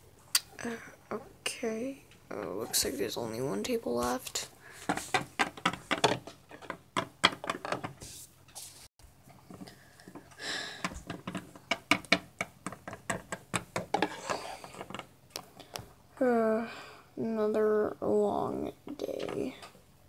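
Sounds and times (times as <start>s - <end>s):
plastic toys clicking on wooden table: 10.8s - 15.1s.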